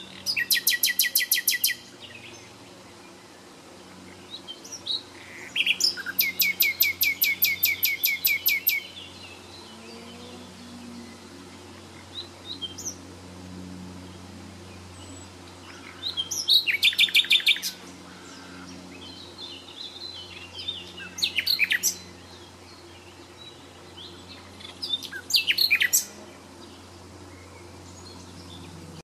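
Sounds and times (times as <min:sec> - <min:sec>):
steady low hum: 0:00.0 - 0:29.0
songbird singing high notes: 0:04.5 - 0:10.2, 0:24.6 - 0:26.1.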